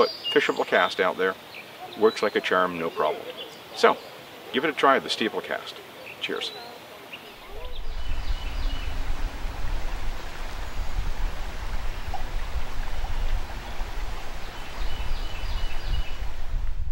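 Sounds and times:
flowing river water: 0:00.0 - 0:16.9
wind on microphone: 0:07.3 - 0:16.9.

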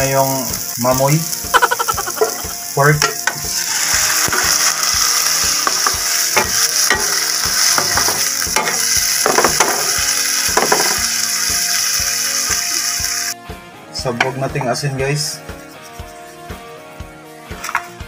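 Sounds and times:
meat sizzling in a pan: 0:00.0 - 0:13.4.

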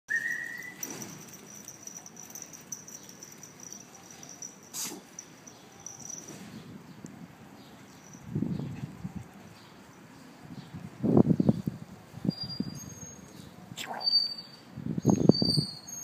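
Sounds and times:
small dogs playing: 0:00.8 - 0:06.5.

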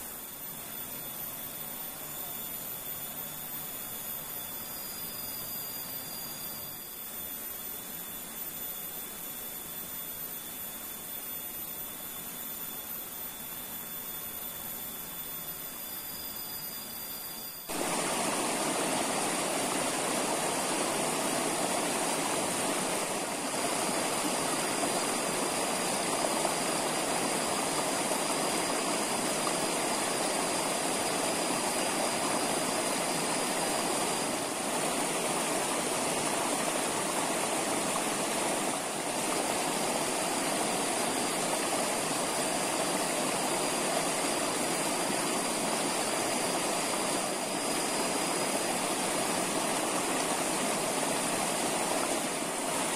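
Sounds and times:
flowing stream water: 0:00.0 - 0:16.2, 0:17.6 - 0:52.9
faint thin high tone: 0:00.0 - 0:17.8.

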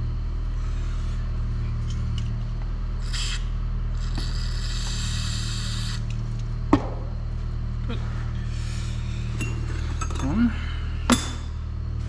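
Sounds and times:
steady low hum: 0:00.0 - 0:12.0
hiss: 0:04.0 - 0:06.0.

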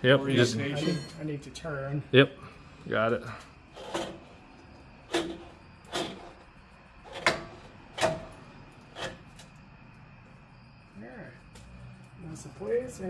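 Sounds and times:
sharp metal knocks: 0:07.2 - 0:08.4.

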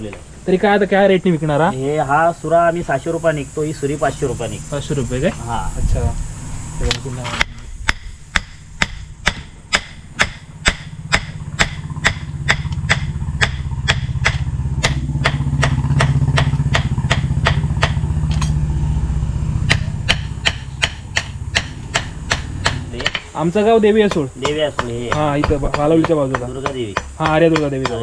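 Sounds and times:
low engine hum: 0:04.0 - 0:23.1.

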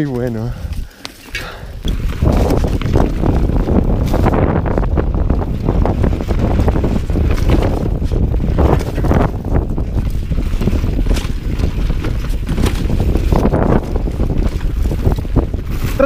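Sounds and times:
bike clattering over rough ground: 0:00.0 - 0:16.0
bike tyres rumbling on dirt: 0:00.0 - 0:16.0
wind buffeting microphone: 0:00.0 - 0:16.0.

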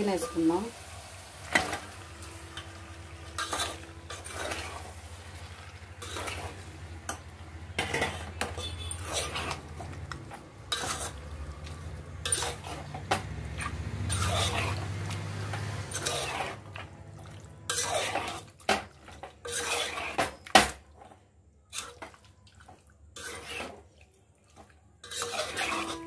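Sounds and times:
light sizzle: 0:00.0 - 0:21.1
metal spoon scraping a pot: 0:01.5 - 0:05.1, 0:05.9 - 0:17.0, 0:17.6 - 0:20.4, 0:21.7 - 0:22.2, 0:23.1 - 0:24.0, 0:25.0 - 0:26.0.

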